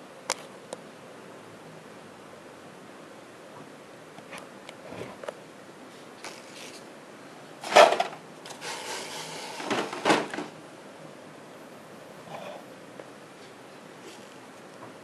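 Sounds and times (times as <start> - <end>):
rubbing and scraping: 7.6 - 10.0.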